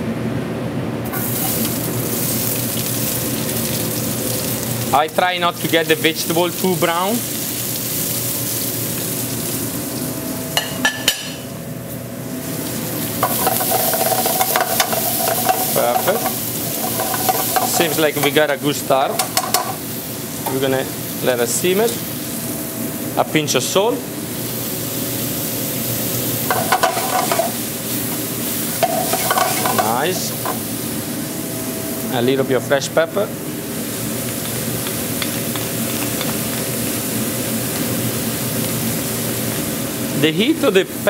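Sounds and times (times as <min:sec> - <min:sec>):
vegetables sizzling in oil: 0:01.1 - 0:10.6, 0:12.2 - 0:23.2, 0:23.8 - 0:32.1, 0:33.2 - 0:41.0
pan clattering: 0:13.2 - 0:18.4, 0:26.5 - 0:27.6, 0:28.8 - 0:30.6.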